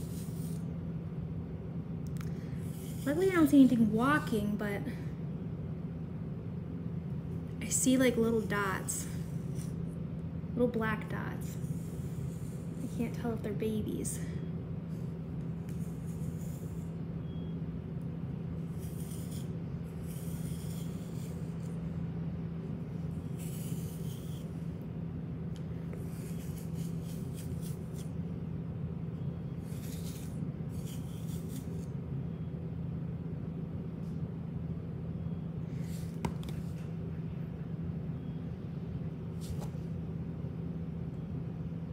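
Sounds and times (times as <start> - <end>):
steady low hum: 0.0 - 41.9
comb scratching through fur: 15.4 - 16.9, 18.6 - 21.8, 23.2 - 24.7, 25.9 - 28.2, 29.6 - 31.9.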